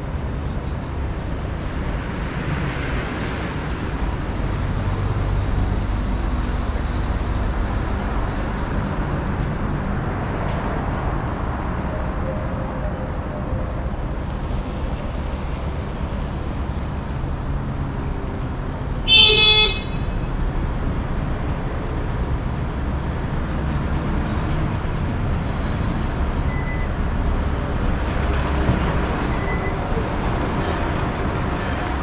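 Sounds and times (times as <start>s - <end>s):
city street traffic: 0.0s - 32.0s
vehicle horn toot: 19.1s - 20.1s.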